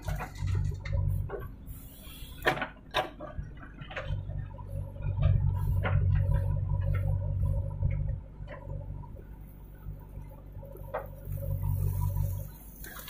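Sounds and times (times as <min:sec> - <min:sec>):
diesel engine running under load: 0:00.0 - 0:13.0.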